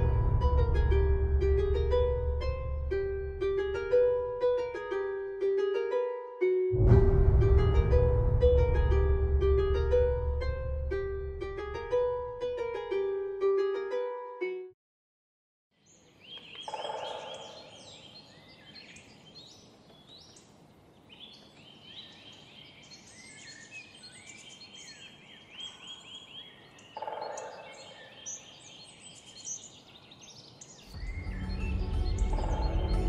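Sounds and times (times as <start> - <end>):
loud low bursts: 0.0 - 4.4, 6.8 - 12.5
small birds chirping: 15.8 - 33.0.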